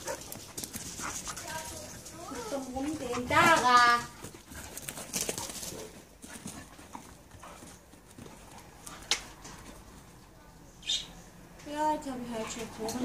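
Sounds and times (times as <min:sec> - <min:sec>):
dogs scuffling on grass: 0:00.0 - 0:10.1.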